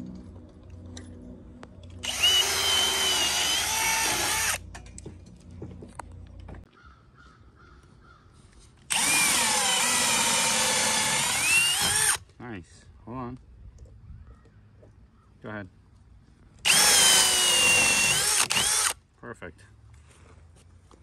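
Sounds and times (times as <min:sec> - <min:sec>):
power drill running: 0:02.0 - 0:04.6, 0:08.9 - 0:12.2, 0:16.6 - 0:19.0.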